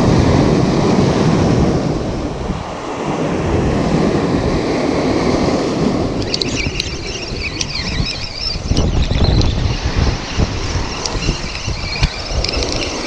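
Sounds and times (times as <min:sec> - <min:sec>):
surf washing over rocks: 0:00.0 - 0:07.7, 0:08.6 - 0:13.0
wind buffeting microphone: 0:00.0 - 0:13.0.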